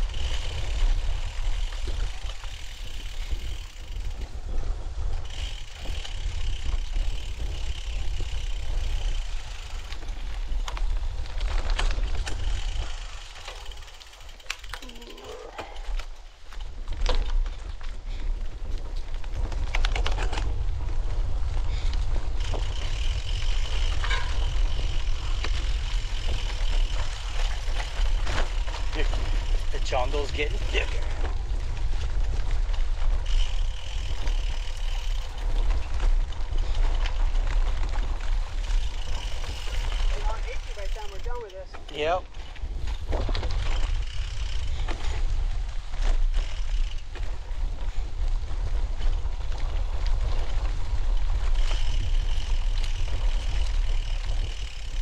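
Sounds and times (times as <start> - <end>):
bicycle ticking and rattling: 0.0 - 55.0
wind buffeting microphone: 15.4 - 55.0.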